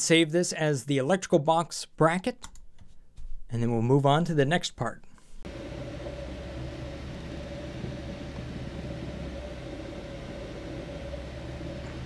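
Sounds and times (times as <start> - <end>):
three-d printer humming: 5.5 - 12.0.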